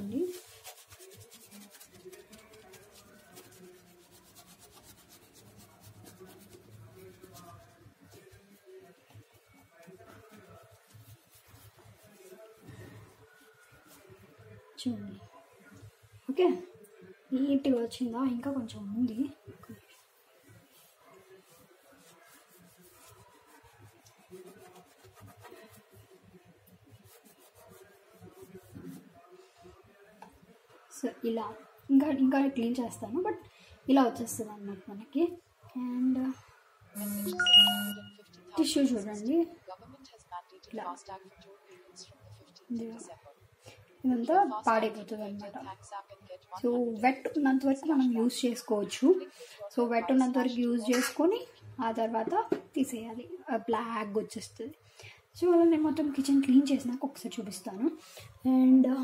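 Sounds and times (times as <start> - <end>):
wipe scrubbing glass stove: 0.0 - 14.5, 19.6 - 29.2.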